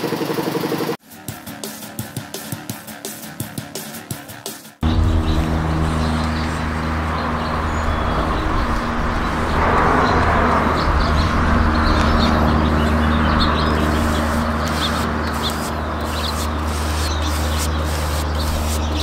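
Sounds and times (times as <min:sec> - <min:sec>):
broad rushing noise: 0:04.8 - 0:19.0
low mechanical hum: 0:04.8 - 0:19.0
small birds chirping: 0:04.8 - 0:19.0.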